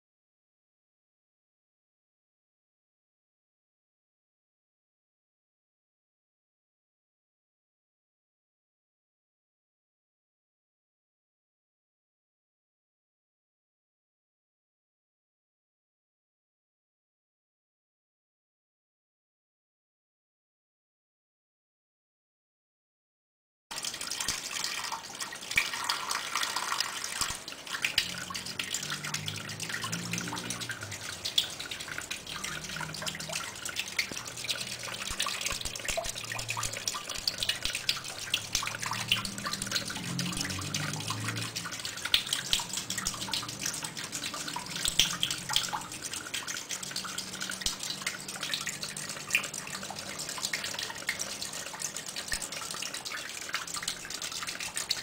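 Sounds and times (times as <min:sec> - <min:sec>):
water splashing from a hose: 0:23.7 - 0:55.0.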